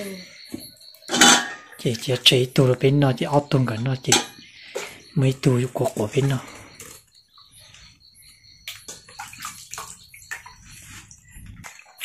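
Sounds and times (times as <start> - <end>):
water splashing in a metal basin: 1.0 - 7.0, 8.5 - 12.0.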